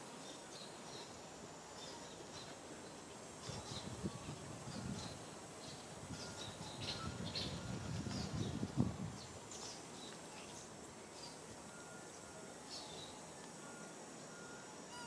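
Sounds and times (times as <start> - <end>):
small birds chirping: 0.2 - 15.0.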